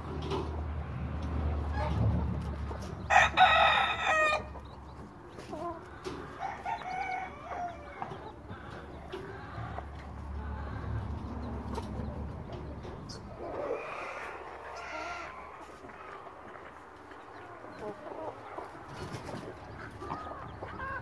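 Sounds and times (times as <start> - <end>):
chicken clucking: 0.0 - 21.0
chicken crowing: 3.1 - 4.6, 5.6 - 10.9, 13.4 - 16.2.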